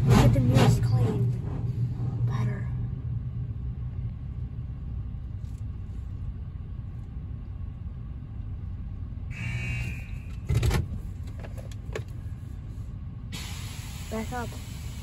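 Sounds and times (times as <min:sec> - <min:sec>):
car wash low rumble: 0:00.0 - 0:15.0
loud air blast: 0:13.3 - 0:15.0
water spray hiss: 0:13.4 - 0:15.0.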